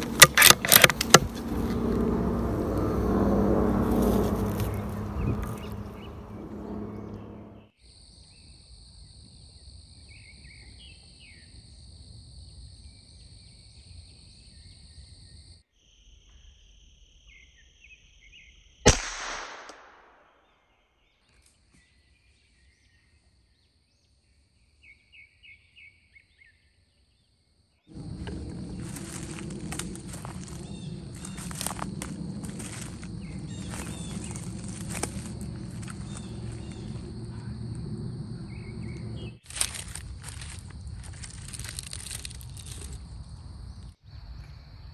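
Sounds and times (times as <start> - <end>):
insects droning: 0.0 - 18.9, 21.8 - 44.9
rifle shot: 18.9 - 20.3
rustling noise: 27.9 - 37.1, 39.4 - 43.2.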